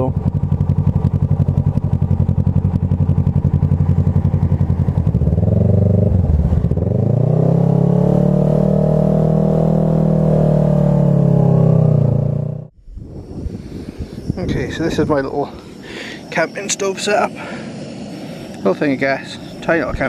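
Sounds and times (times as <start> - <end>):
motorcycle engine accelerating: 0.0 - 15.2.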